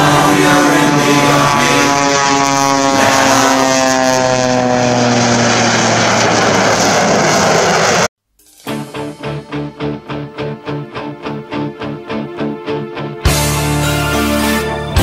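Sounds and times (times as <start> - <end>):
propeller plane engine droning: 0.0 - 8.1.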